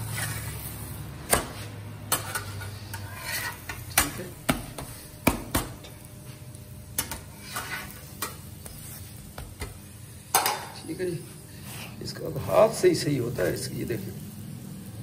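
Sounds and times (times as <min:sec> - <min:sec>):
metal spatula clacking on griddle: 0:01.2 - 0:06.0, 0:06.9 - 0:10.8.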